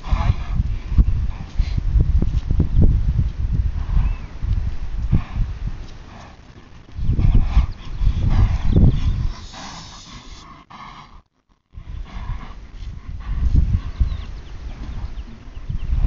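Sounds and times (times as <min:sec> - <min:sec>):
low rumble: 0:00.0 - 0:10.4
horse hoofbeats on dirt: 0:05.0 - 0:09.6.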